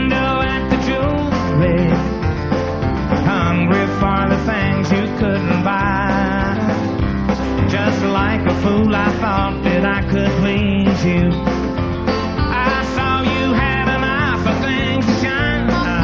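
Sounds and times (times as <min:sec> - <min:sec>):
man singing into microphone: 0:00.0 - 0:02.2, 0:03.1 - 0:07.0, 0:07.6 - 0:11.6, 0:12.4 - 0:16.0
live country band playing: 0:00.0 - 0:16.0.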